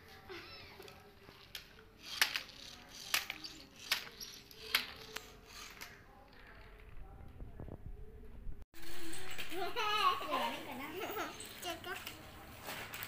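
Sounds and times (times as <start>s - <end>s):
plastic toy cars clicking: 0.8s - 6.9s.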